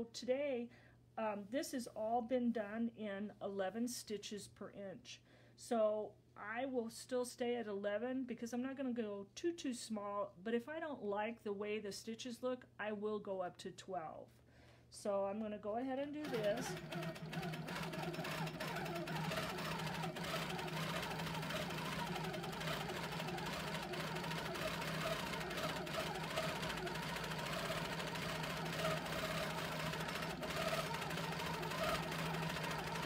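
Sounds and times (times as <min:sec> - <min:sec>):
quilting machine stitching: 0:16.1 - 0:33.0.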